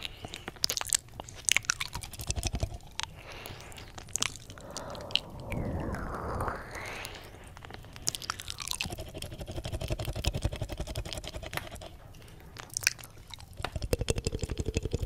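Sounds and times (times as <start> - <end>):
wet mouth sounds: 0.0 - 5.7, 7.2 - 15.0
tongue flutters and clicks: 0.0 - 15.0
low held hum: 1.9 - 12.6.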